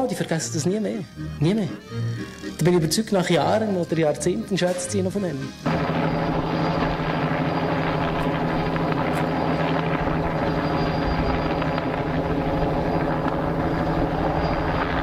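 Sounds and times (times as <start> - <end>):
helicopter flying overhead: 5.4 - 15.0.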